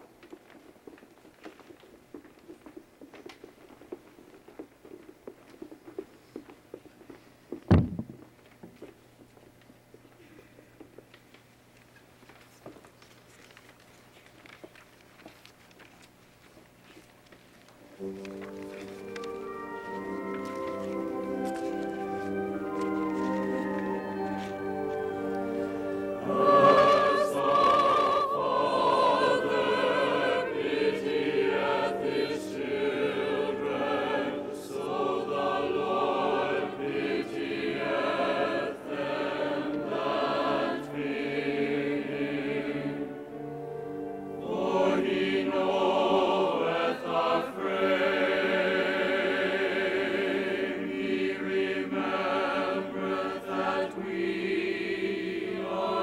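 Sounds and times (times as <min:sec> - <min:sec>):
mixed choir singing: 0:18.0 - 0:56.0.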